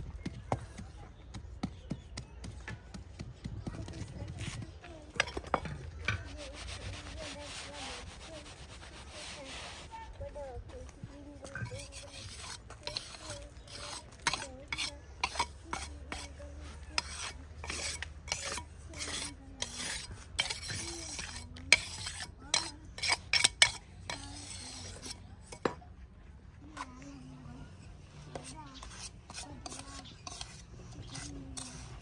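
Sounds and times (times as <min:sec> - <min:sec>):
trowel scraping wet cement: 0:03.7 - 0:10.1, 0:11.4 - 0:25.7, 0:28.2 - 0:32.0.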